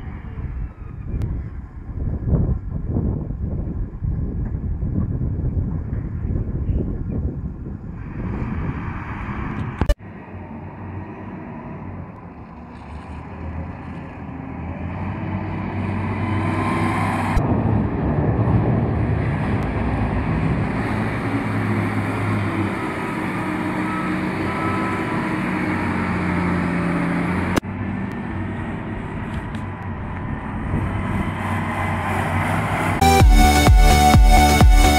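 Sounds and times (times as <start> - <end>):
diesel engine revving: 7.9 - 34.9.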